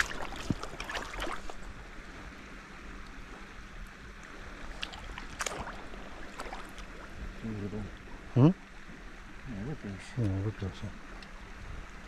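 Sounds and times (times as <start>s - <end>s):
water splashing and lapping: 0.0s - 8.5s
flowing river water: 0.0s - 12.0s.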